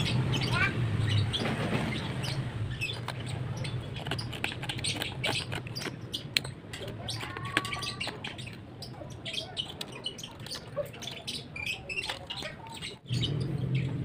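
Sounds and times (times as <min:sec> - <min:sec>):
knife scraping wood: 0:01.7 - 0:09.0.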